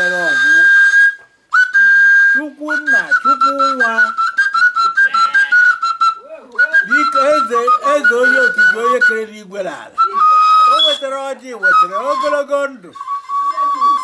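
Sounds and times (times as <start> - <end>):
high whistle tone: 0.0 - 9.3, 10.0 - 14.0
man chanting: 6.8 - 10.0.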